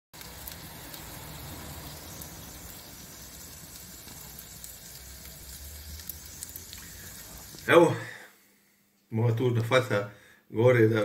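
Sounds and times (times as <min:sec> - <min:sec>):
faint crackles: 0:00.2 - 0:07.8
meat sizzling on a grill: 0:00.2 - 0:08.2.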